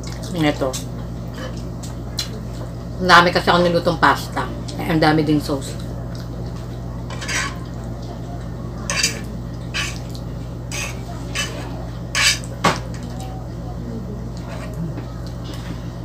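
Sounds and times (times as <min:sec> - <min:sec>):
steady low hum: 0:00.0 - 0:16.0
fork scraping a frying pan: 0:07.1 - 0:07.7, 0:08.9 - 0:10.1, 0:10.7 - 0:12.5, 0:14.4 - 0:14.8.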